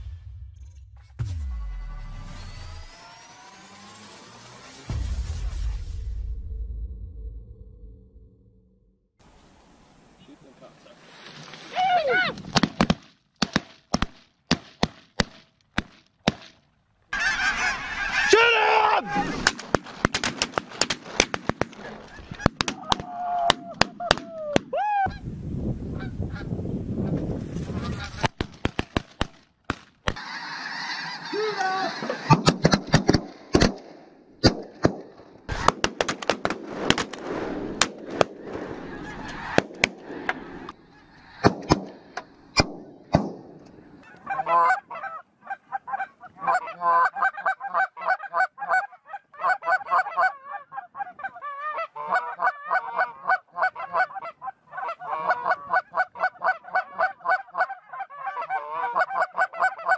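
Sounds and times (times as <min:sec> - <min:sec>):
snow geese honking: 0:17.1 - 0:18.4, 0:30.2 - 0:32.4, 0:38.7 - 0:39.6, 0:44.0 - 0:59.9.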